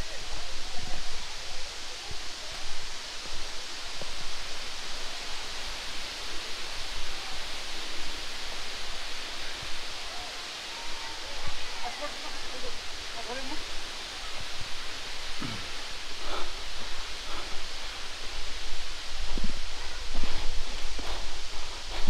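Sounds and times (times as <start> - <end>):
outdoor hiss: 0.0 - 22.0
footsteps on rocks: 16.8 - 22.0.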